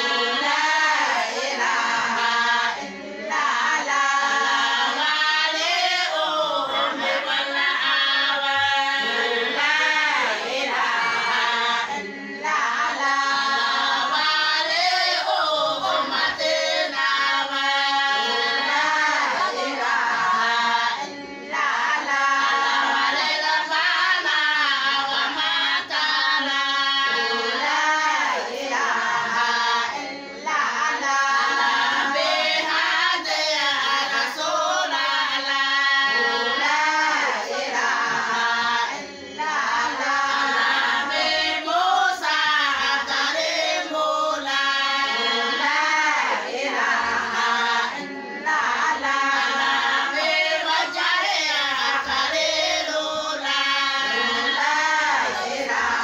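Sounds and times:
group of women singing: 0:00.0 - 0:56.0.

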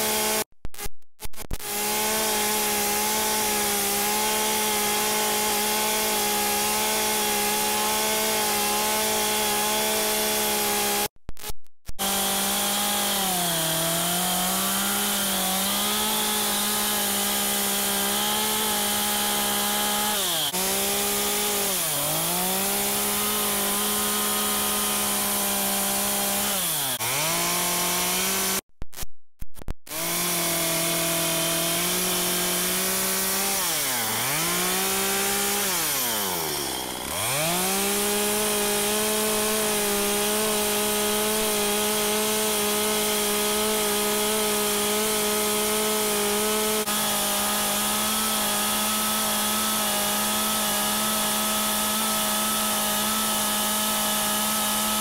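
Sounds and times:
chainsaw cutting wood: 0:00.0 - 0:00.9, 0:01.5 - 0:28.6, 0:29.9 - 0:55.0.

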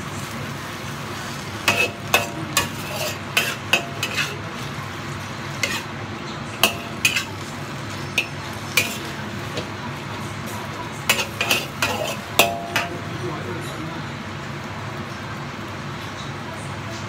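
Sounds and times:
greens sizzling in a wok: 0:00.0 - 0:17.0
metal spatula clanking on wok: 0:01.6 - 0:04.7, 0:05.5 - 0:05.9, 0:06.6 - 0:09.7, 0:11.0 - 0:13.1.

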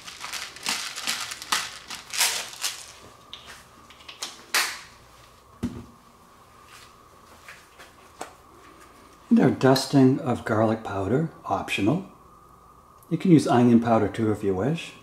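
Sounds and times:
pepper mill grinding: 0:00.0 - 0:03.0.

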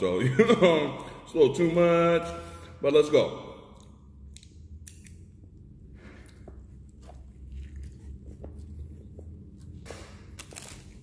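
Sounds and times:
low steady hum: 0:00.0 - 0:11.0
man chewing crunchy food: 0:06.0 - 0:11.0.

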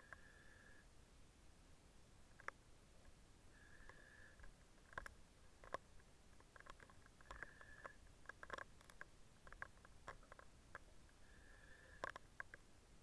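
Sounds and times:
breathing through a mask: 0:11.2 - 0:12.2.

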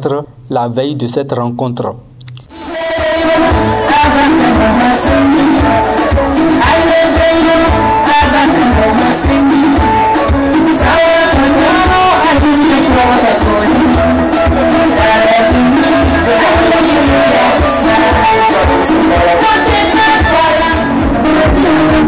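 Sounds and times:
amplified music with steady beat: 0:02.3 - 0:22.0
woman singing into a microphone: 0:02.5 - 0:22.0.

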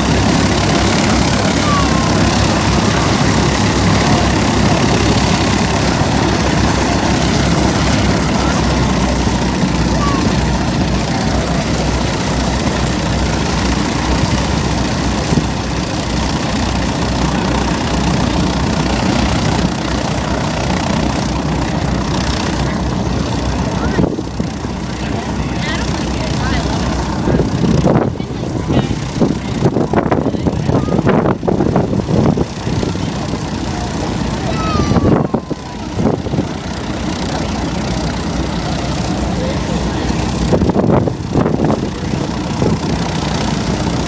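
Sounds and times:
propeller airplane engines idling: 0:00.0 - 0:44.0.

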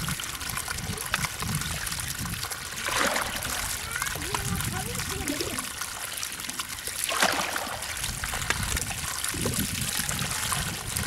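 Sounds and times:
water trickling and splashing: 0:00.0 - 0:11.0.

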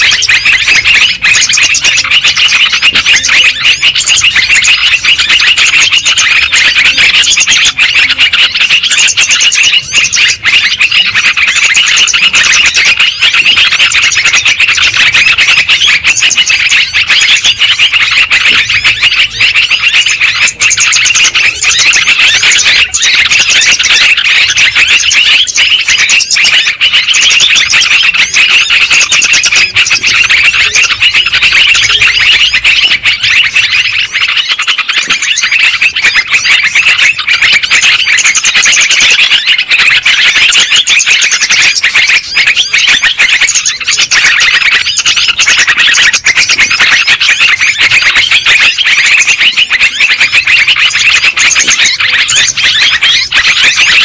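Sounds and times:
bulbuls calling and chattering: 0:00.0 - 0:54.0.

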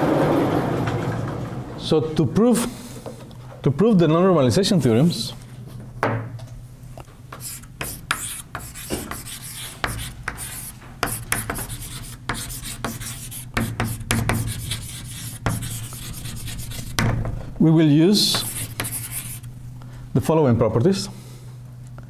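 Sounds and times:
scratchy writing on board: 0:07.3 - 0:17.1, 0:18.3 - 0:19.5.

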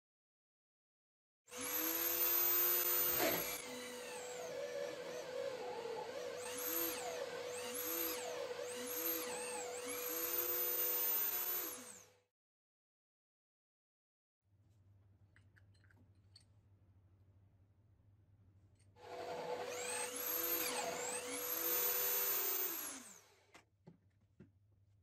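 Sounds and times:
drill press motor hum: 0:01.5 - 0:12.1, 0:19.0 - 0:23.5
hole saw cutting plywood: 0:01.6 - 0:12.0, 0:19.0 - 0:23.2.

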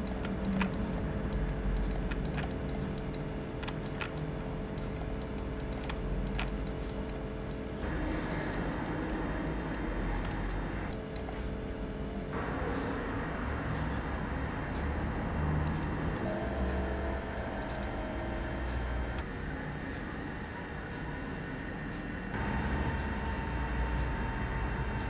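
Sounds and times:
mouse and keyboard clicking: 0:00.0 - 0:07.6, 0:15.6 - 0:16.0, 0:17.6 - 0:17.9
steady low hum: 0:00.0 - 0:25.0.

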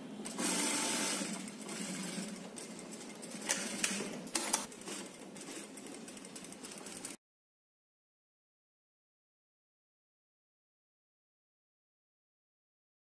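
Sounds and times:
industrial sewing machine stitching: 0:00.2 - 0:07.2.

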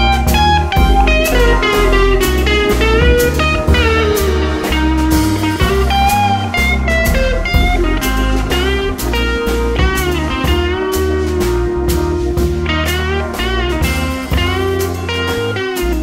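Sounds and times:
bass: 0:00.0 - 0:16.0
bluesy slide guitar: 0:00.0 - 0:16.0
steady drum beat: 0:00.8 - 0:06.0.

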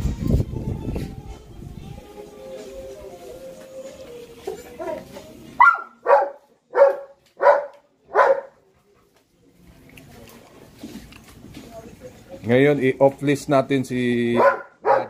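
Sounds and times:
dog barking: 0:05.6 - 0:08.6, 0:14.4 - 0:15.0.

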